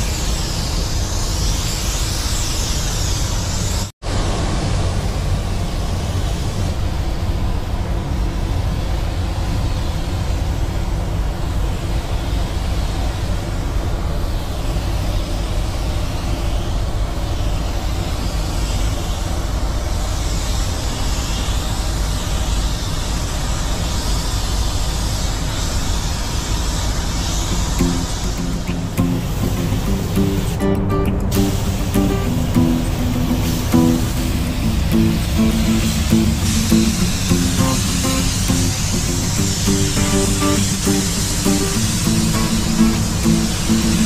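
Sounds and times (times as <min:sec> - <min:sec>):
ventilation rumble: 0:03.7 - 0:16.2, 0:27.5 - 0:44.0
spray gun hissing: 0:23.2 - 0:44.0.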